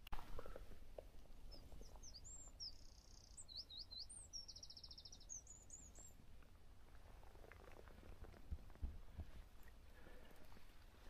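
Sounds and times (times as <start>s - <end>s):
small songbird singing: 1.5s - 6.2s.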